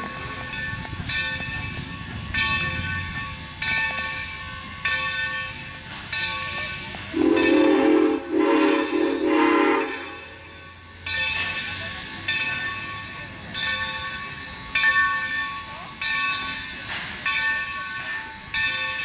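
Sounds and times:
train bell ringing: 0:00.0 - 0:19.0
train rumble: 0:00.0 - 0:19.0
train horn blasts: 0:07.1 - 0:10.4.

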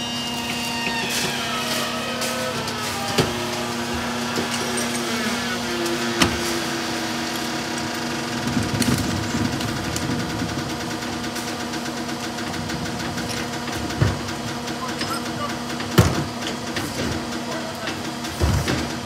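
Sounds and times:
truck engine idling: 0:00.0 - 0:19.0
wheeled cart rumbling over pavement: 0:00.0 - 0:19.0.

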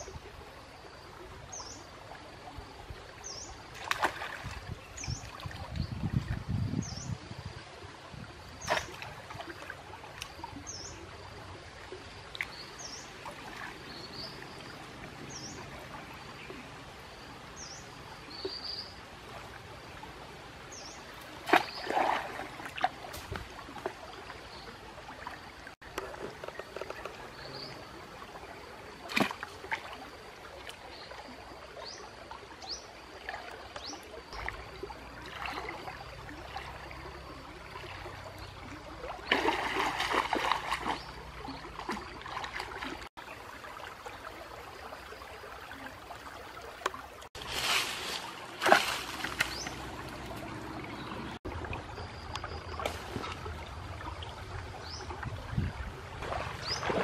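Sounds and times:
flowing water: 0:00.0 - 0:57.0
splashing through water: 0:03.7 - 0:06.4, 0:08.5 - 0:10.7, 0:21.1 - 0:30.8, 0:33.2 - 0:44.4, 0:45.4 - 0:57.0.

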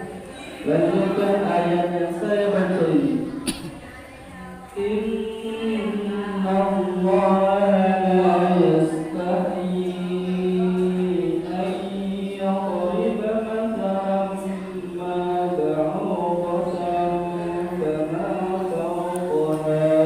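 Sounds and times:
person chanting melodically: 0:04.3 - 0:20.0.

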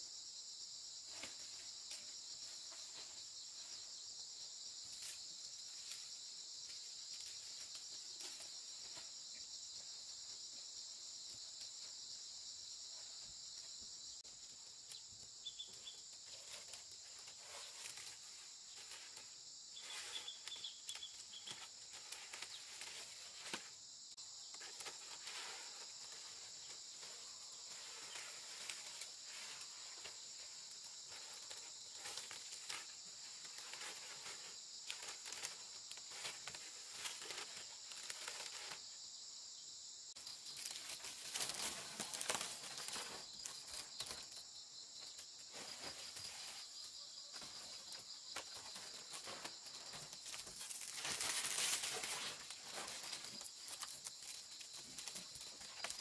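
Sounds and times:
high insect chorus: 0:00.0 - 0:56.0
dry leaf thatch rustling: 0:15.6 - 0:23.8, 0:24.5 - 0:38.9, 0:40.2 - 0:44.4, 0:47.4 - 0:56.0.

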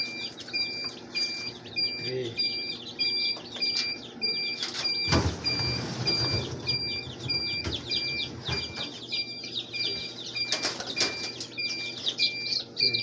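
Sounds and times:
chicks peeping: 0:00.0 - 0:13.0
electronic beep: 0:00.0 - 0:13.0
metal trays clattering: 0:04.6 - 0:09.0, 0:10.4 - 0:12.1.

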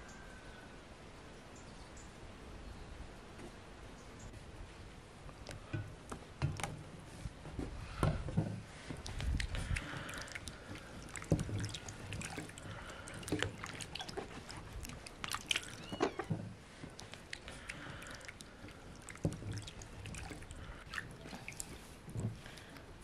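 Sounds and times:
vegetables splashing in water: 0:09.0 - 0:16.3, 0:16.9 - 0:21.8.

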